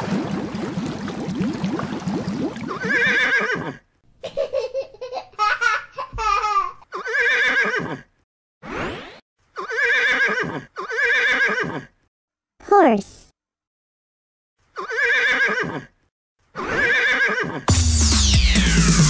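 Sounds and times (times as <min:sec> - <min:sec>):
horse whinnying: 0:02.8 - 0:03.8, 0:09.6 - 0:11.9, 0:14.8 - 0:15.9, 0:16.6 - 0:17.7.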